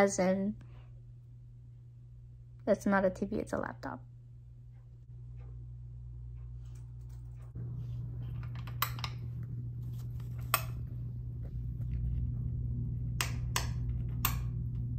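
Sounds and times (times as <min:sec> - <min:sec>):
steady low hum: 0:00.0 - 0:14.9
lamp switch clicks: 0:13.1 - 0:14.7.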